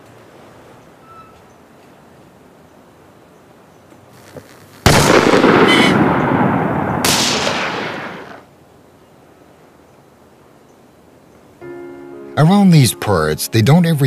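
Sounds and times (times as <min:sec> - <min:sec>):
gunshots with rolling echo: 0:04.8 - 0:08.5.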